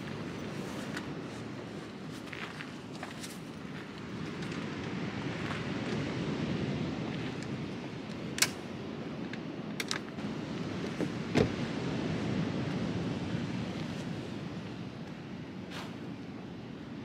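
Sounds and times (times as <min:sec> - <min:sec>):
wind noise: 0:00.0 - 0:17.0
car door thump: 0:11.3 - 0:11.6.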